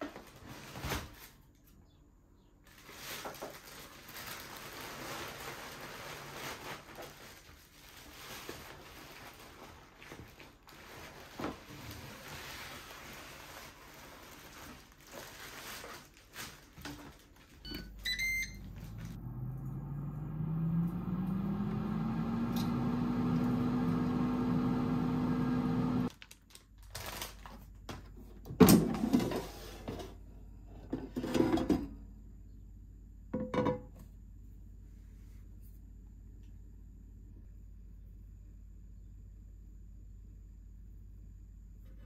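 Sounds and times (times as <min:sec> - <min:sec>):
air fryer beeping: 0:17.6 - 0:26.1
air fryer fan humming: 0:17.6 - 0:26.1.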